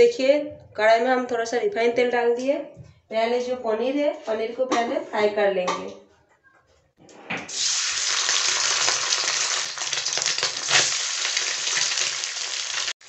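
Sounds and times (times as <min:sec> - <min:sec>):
cheese cubes sizzling in hot oil: 0:07.5 - 0:13.0.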